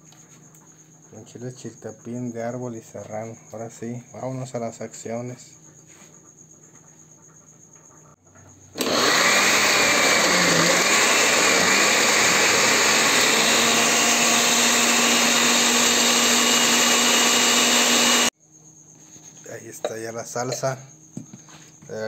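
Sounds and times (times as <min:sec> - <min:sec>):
kitchen blender running: 0:08.8 - 0:18.3.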